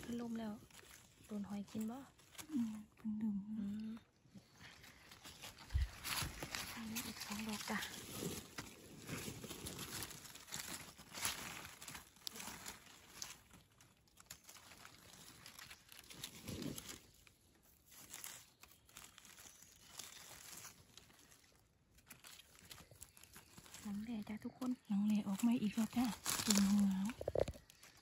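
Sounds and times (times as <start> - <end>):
dry leaves rustling and crackling: 0.0 - 3.8, 4.4 - 28.0.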